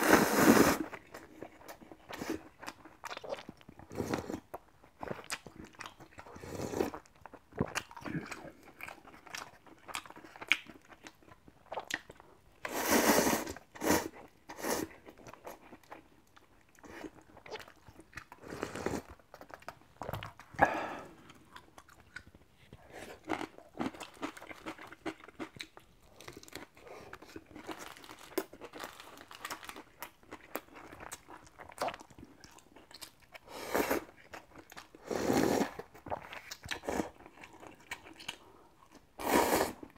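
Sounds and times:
slurping broth: 0.0s - 1.0s, 12.6s - 15.0s, 18.4s - 19.1s, 33.5s - 34.1s, 35.0s - 35.9s, 39.2s - 39.9s
crunchy chewing: 15.0s - 39.0s.

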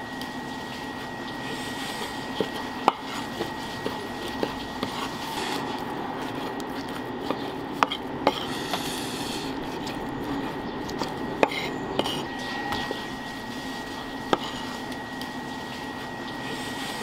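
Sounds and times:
steady background noise: 0.0s - 17.0s.

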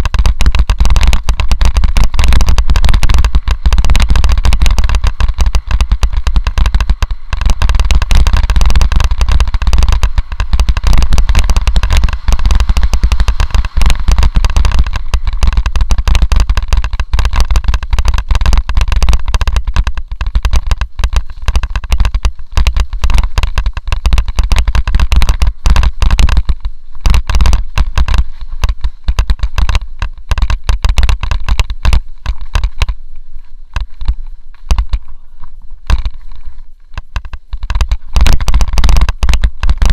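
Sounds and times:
bike rattling over rough ground: 0.0s - 39.9s
low wind rumble: 0.0s - 39.9s.

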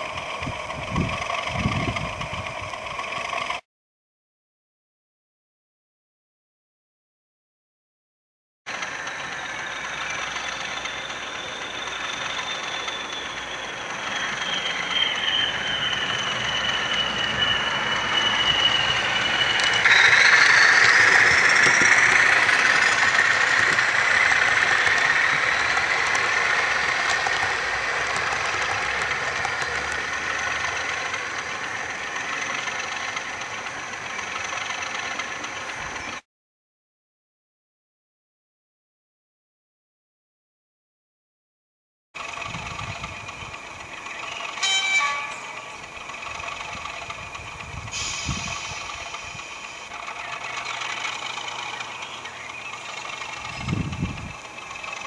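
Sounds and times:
model diesel locomotive engine: 0.0s - 3.6s, 8.7s - 36.2s, 42.2s - 55.0s
turbocharger whistle whine: 8.7s - 34.6s, 44.1s - 46.5s, 47.4s - 52.7s.

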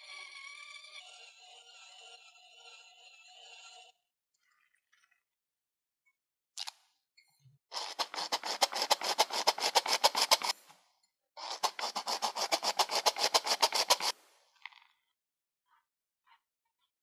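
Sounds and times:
flour sifted through sieve: 7.7s - 10.8s, 11.4s - 14.4s.

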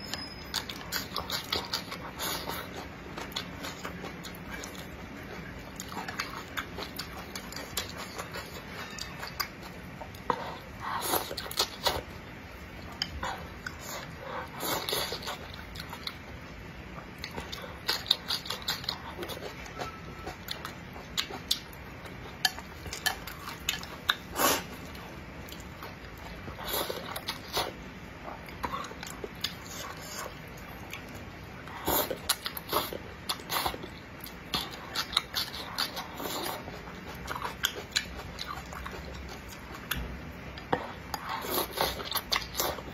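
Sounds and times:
noodles being slurped and chewed: 40.6s - 42.9s.

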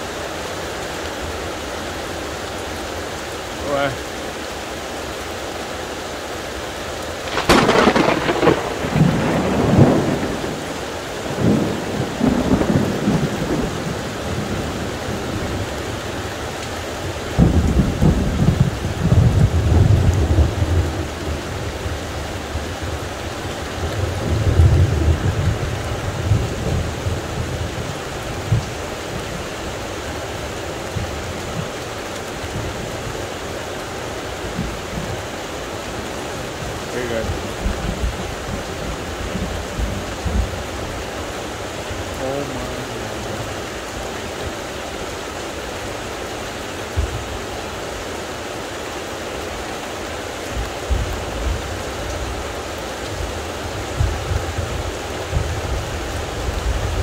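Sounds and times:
heavy rain: 0.0s - 57.0s
thunder cracking and rumbling: 7.2s - 15.7s, 17.3s - 23.0s, 23.8s - 29.4s, 36.6s - 41.0s.

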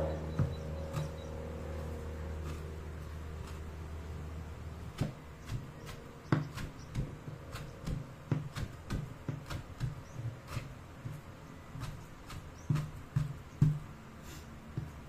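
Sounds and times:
steady low hum: 0.0s - 15.0s
knife chopping on wooden board: 4.9s - 14.0s.

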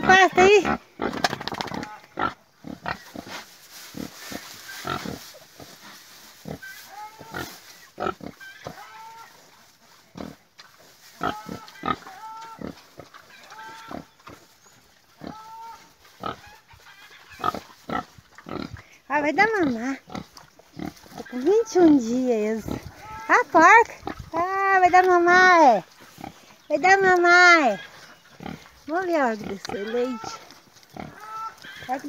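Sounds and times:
pigs grunting: 0.0s - 5.7s, 11.1s - 14.5s, 15.1s - 24.5s, 27.4s - 32.0s
pigs chewing: 0.1s - 32.0s
pigs squeaky calls: 6.4s - 9.5s, 11.2s - 14.5s, 15.1s - 18.7s, 29.4s - 32.0s.

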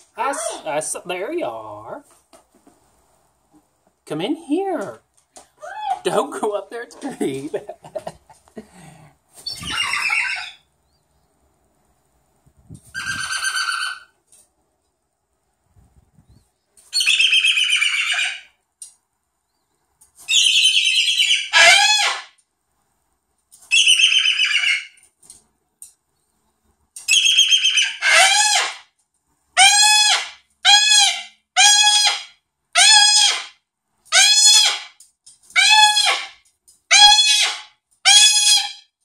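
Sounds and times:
cockatoo screeching: 0.2s - 0.7s, 9.4s - 10.7s, 12.9s - 14.2s, 16.9s - 18.5s, 20.3s - 22.4s, 23.7s - 25.0s, 27.1s - 28.9s, 29.6s - 38.9s.

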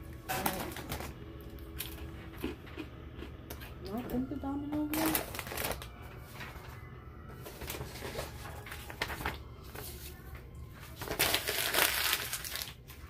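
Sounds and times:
printer paper rustling: 4.9s - 13.0s.

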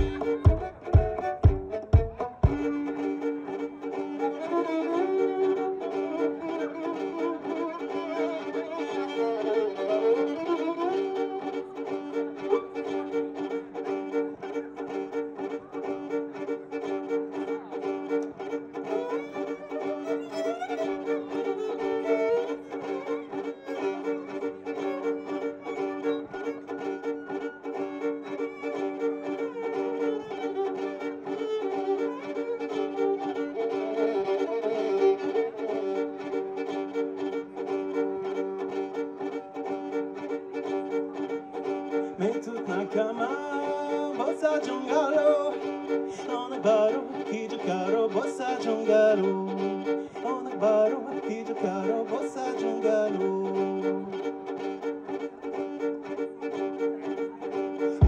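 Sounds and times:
held looped accompaniment: 0.0s - 2.7s
violin playing folk tune: 0.0s - 58.0s.

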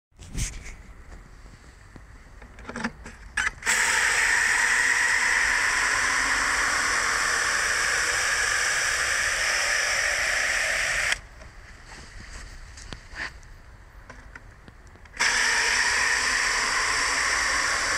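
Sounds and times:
hose water spraying into bottle: 3.6s - 11.2s, 15.2s - 17.9s.

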